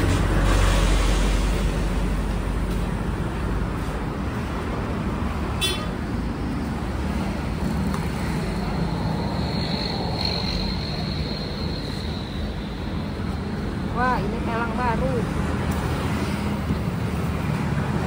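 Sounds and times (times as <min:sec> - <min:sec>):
road traffic: 0:00.0 - 0:18.0.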